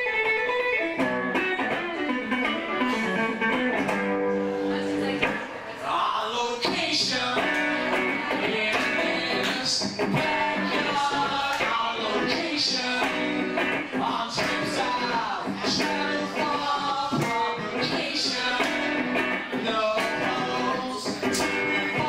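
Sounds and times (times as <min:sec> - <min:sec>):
electric guitar strumming: 0:00.0 - 0:05.7, 0:06.3 - 0:22.0
man singing rock song: 0:04.9 - 0:22.0.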